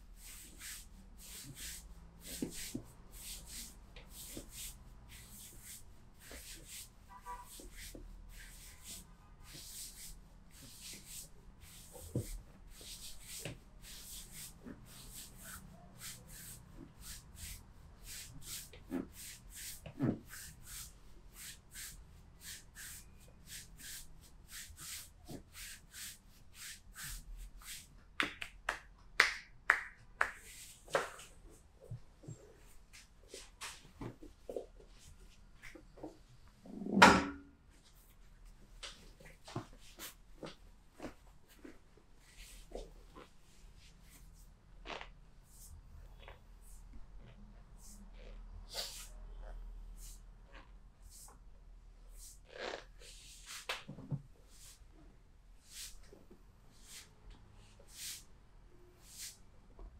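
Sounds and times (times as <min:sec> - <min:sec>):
hands rubbing skin: 0:07.5 - 0:31.6.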